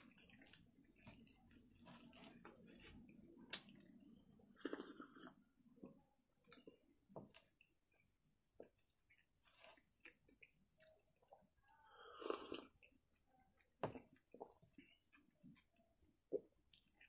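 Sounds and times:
person sipping a drink: 4.6s - 5.4s, 11.8s - 12.9s.

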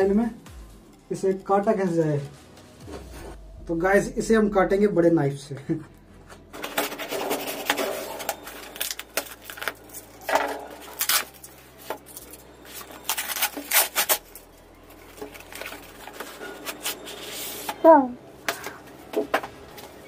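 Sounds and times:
knife slicing parcel wrapping: 10.8s - 11.5s, 12.9s - 14.5s.

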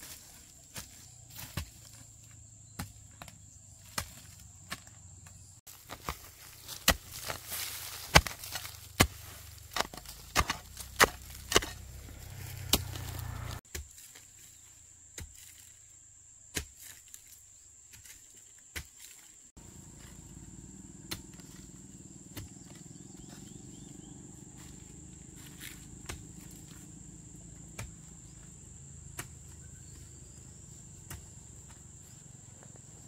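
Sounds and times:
sharp chopping knocks: 12.6s - 13.8s.

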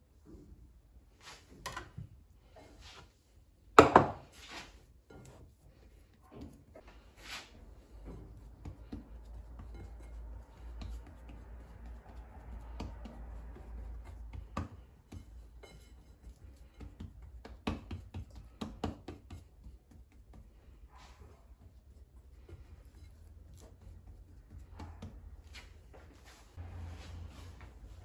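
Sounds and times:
hands rubbing and handling: 4.2s - 14.8s.

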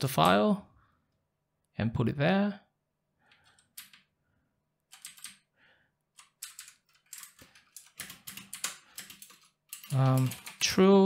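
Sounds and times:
typing on computer keyboard: 3.3s - 4.1s, 4.9s - 5.5s, 6.1s - 10.8s.

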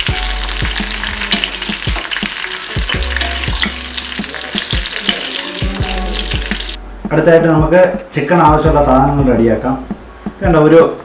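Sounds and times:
frying in hot oil crackling: 0.0s - 6.8s.

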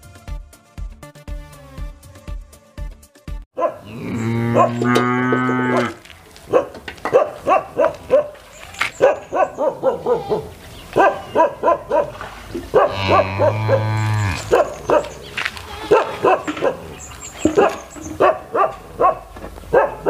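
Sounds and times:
dog barking: 3.6s - 4.9s, 6.5s - 8.4s, 9.0s - 15.2s, 15.8s - 20.0s
cow mooing: 3.8s - 6.0s, 12.8s - 14.8s.

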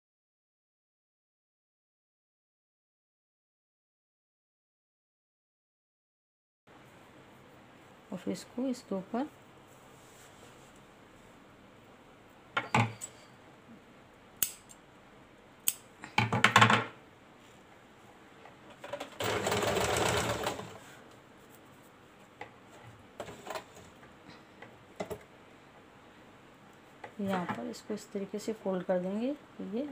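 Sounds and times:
sewing machine stitching: 18.8s - 20.8s.

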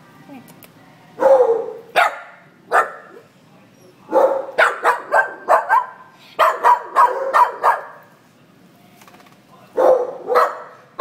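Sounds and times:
small dog barking: 1.2s - 3.2s, 4.1s - 8.0s, 9.8s - 10.8s.

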